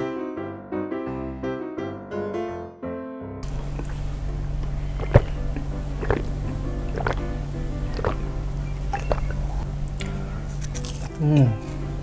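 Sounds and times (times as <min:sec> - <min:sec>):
person gulping a drink: 0:03.4 - 0:08.3, 0:08.9 - 0:10.2
background music with bass: 0:03.4 - 0:12.0.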